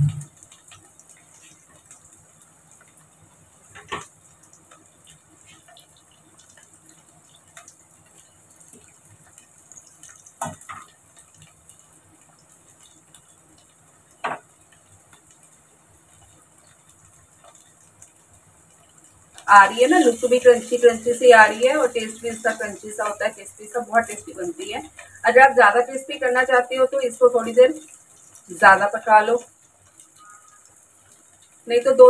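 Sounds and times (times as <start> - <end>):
food sizzling in oil: 0.0 - 32.0.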